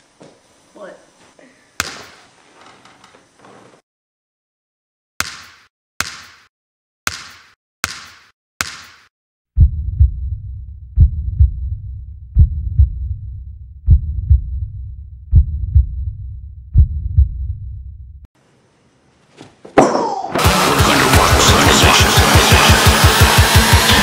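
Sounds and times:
heartbeat thumps: 0:09.6 - 0:18.2
low rumble: 0:09.6 - 0:18.3
loud music: 0:20.4 - 0:24.0.

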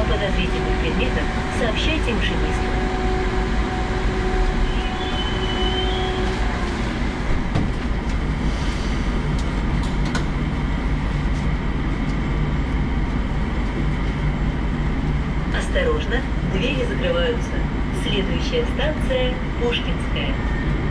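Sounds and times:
train wheels rumbling: 0:00.0 - 0:20.9
high squeal: 0:04.6 - 0:06.3.

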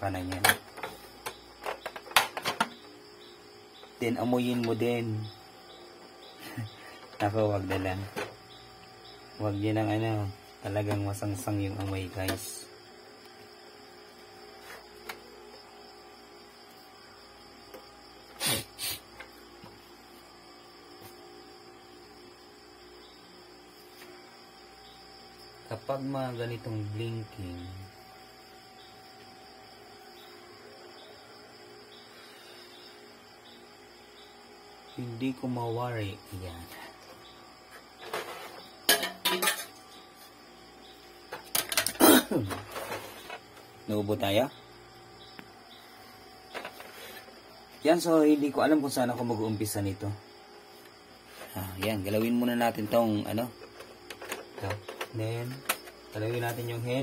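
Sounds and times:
steady background hum: 0:00.0 - 0:57.0
man coughing: 0:42.0 - 0:42.5.

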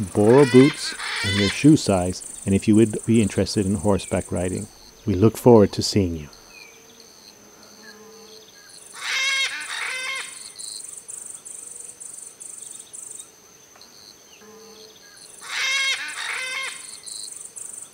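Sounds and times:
animal calls: 0:00.0 - 0:05.1, 0:08.9 - 0:10.5, 0:15.4 - 0:17.3
insects trilling: 0:00.0 - 0:17.9.

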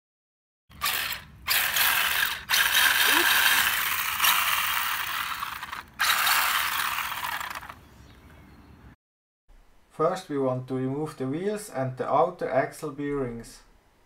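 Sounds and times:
gear teeth ratcheting: 0:00.7 - 0:07.8.

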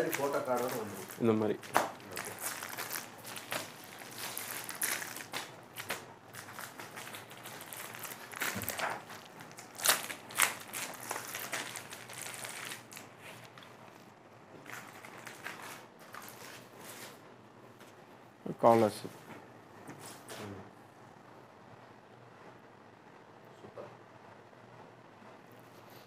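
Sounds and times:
plastic packets crinkling: 0:00.0 - 0:17.2.

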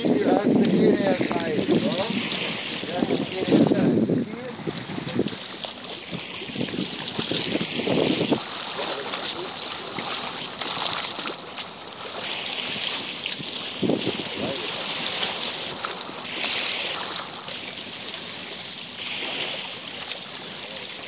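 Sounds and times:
wind on microphone: 0:00.0 - 0:10.1, 0:12.8 - 0:15.4
water lapping against a boat: 0:00.0 - 0:21.0.

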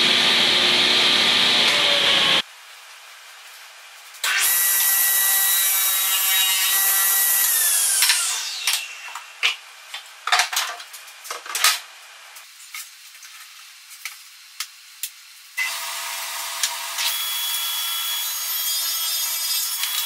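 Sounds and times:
table saw whining: 0:00.0 - 0:02.4, 0:04.2 - 0:09.4, 0:15.6 - 0:20.0.

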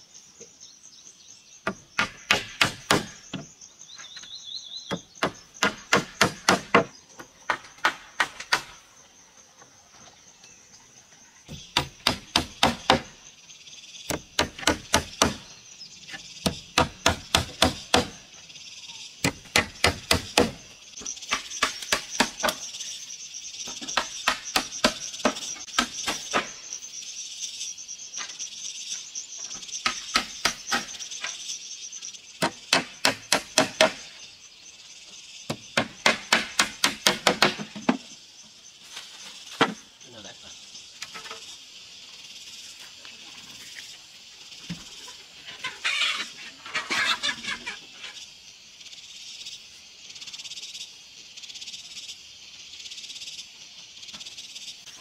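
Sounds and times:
hammer driving nails into wood: 0:02.0 - 0:03.4, 0:04.9 - 0:06.9.

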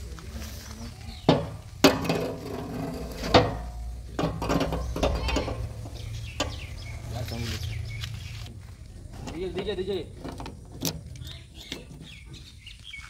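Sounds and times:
metal rod knocking and scraping: 0:01.3 - 0:06.7, 0:10.1 - 0:12.4.

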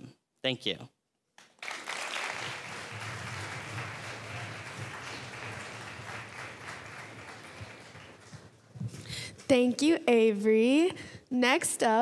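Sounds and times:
audience applauding: 0:01.4 - 0:08.7.

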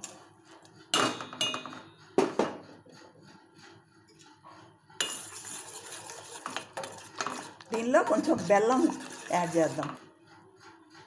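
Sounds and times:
metal pot clinking: 0:01.0 - 0:01.9.

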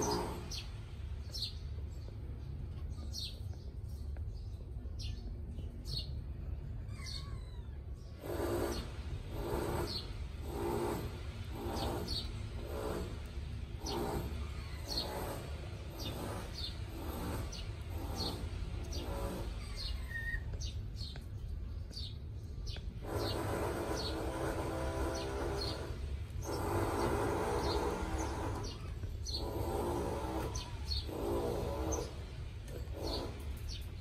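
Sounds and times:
cats purring: 0:23.0 - 0:33.6.

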